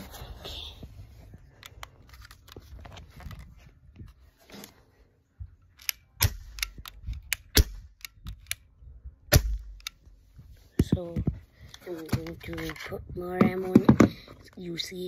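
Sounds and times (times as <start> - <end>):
airsoft pistol shots: 9.3 - 9.8.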